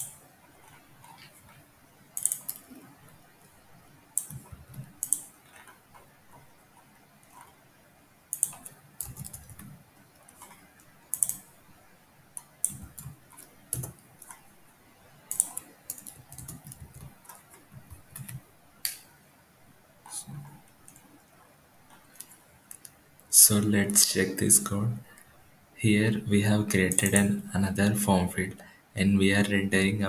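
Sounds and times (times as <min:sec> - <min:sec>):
computer keyboard tapping: 0:02.2 - 0:02.9, 0:04.2 - 0:07.6, 0:08.3 - 0:11.5, 0:12.3 - 0:14.4, 0:15.3 - 0:19.0.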